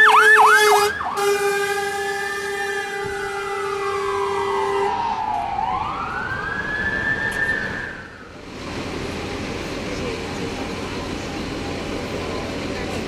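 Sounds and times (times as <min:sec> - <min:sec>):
fire engine wailing siren: 0:00.0 - 0:09.8
road and engine noise: 0:00.0 - 0:13.0
steady horn blast: 0:00.4 - 0:05.0.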